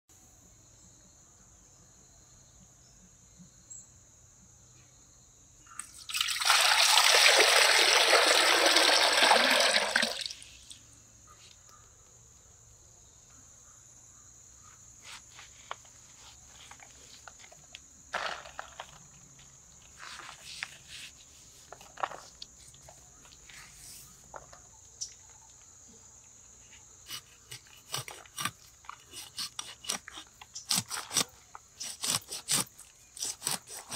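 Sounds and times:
water pouring: 5.8 - 10.5.

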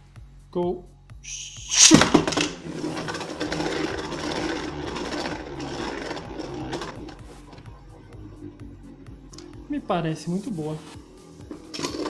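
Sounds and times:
spinning top whirring rattle: 1.3 - 7.7.

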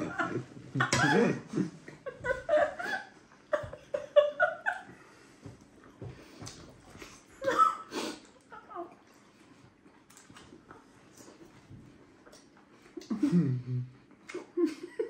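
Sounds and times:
woman laughing muffled: 0.0 - 4.9.

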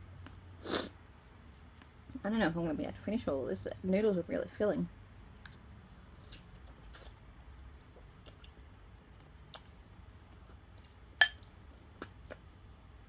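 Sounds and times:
noodles being slurped and chewed: 6.2 - 8.7
fork clinking on ceramic bowl: 11.2 - 11.4.

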